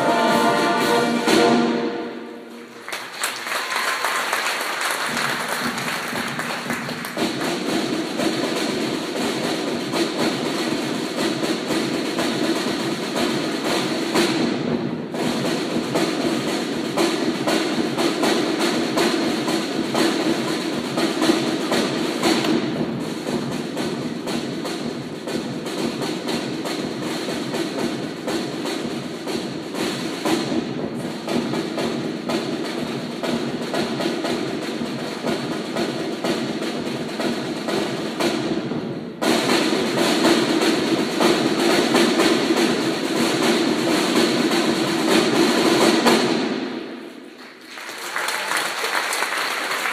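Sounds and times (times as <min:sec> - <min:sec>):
brass band chord: 0:00.0 - 0:02.6
cymbals: 0:00.0 - 0:47.4
side drums: 0:00.0 - 0:49.9
bass drum: 0:05.1 - 0:47.1.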